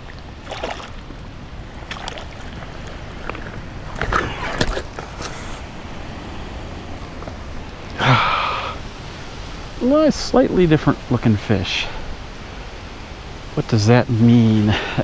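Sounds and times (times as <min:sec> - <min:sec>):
splashing in shallow water: 0:00.0 - 0:05.7.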